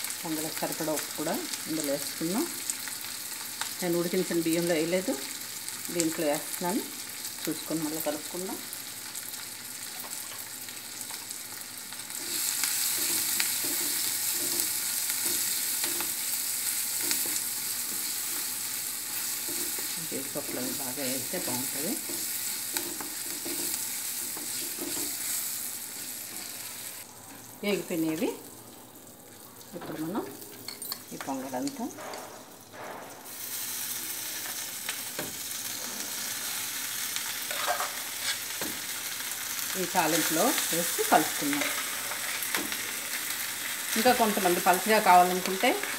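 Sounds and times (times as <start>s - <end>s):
food sizzling in hot fat: 0.0s - 45.9s
wooden spatula scraping a pan: 37.5s - 38.5s.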